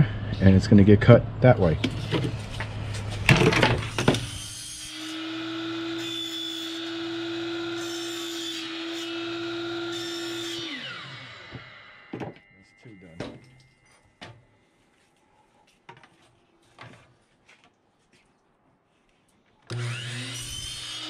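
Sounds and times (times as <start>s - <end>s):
saw blade cutting vinyl: 1.8s - 11.8s, 19.7s - 21.0s
miter saw motor whining: 3.8s - 12.2s, 19.7s - 21.0s.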